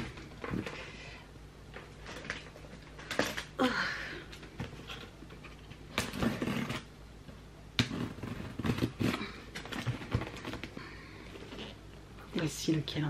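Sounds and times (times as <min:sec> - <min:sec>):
objects knocking and rustling: 0:01.7 - 0:03.6, 0:04.3 - 0:11.7.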